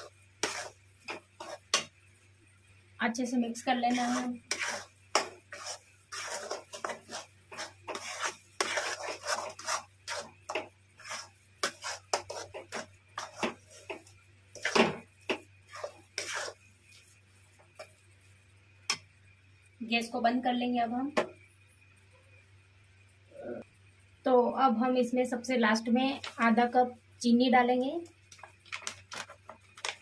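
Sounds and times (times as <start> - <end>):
metal spatula scraping metal pan: 0.0 - 1.9, 3.9 - 15.0, 15.7 - 16.6.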